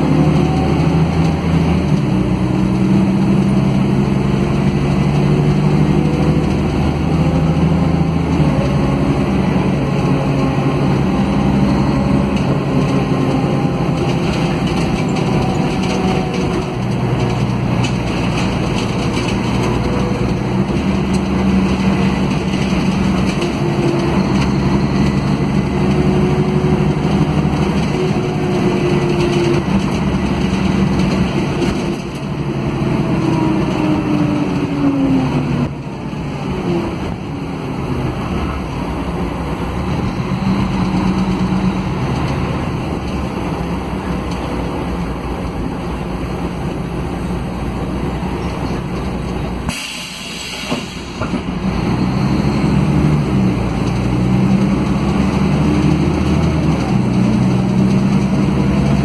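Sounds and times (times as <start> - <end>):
bus engine drone: 0.0 - 59.0
brief hiss: 49.7 - 51.2.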